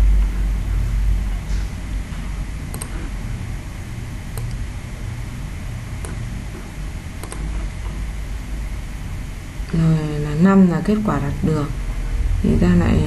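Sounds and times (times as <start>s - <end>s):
steady low hum: 0.0s - 13.0s
computer mouse clicks: 2.7s - 3.1s, 4.3s - 4.6s, 6.0s - 8.0s.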